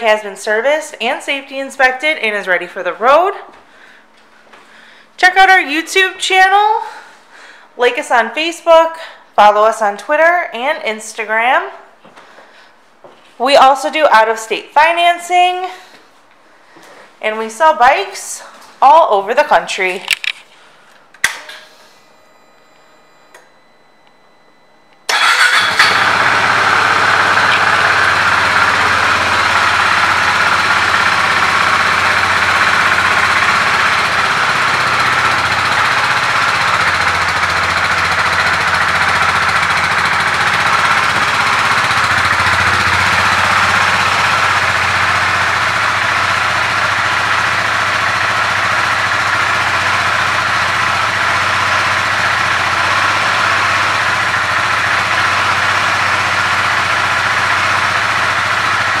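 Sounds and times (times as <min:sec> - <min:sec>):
motorcycle engine idling: 0:25.1 - 0:59.0.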